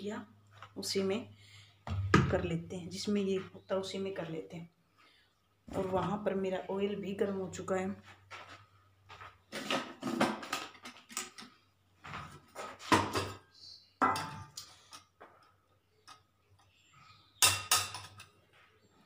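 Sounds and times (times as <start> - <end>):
steel kitchenware clinking: 14.0 - 14.7, 17.4 - 18.4.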